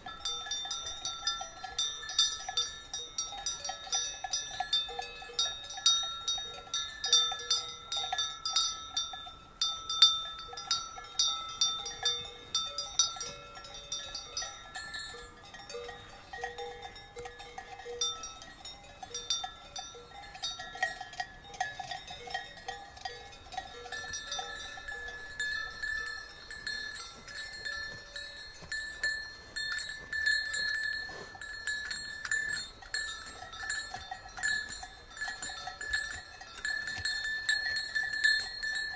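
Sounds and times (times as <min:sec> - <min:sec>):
cowbells clanking: 0:00.0 - 0:38.9.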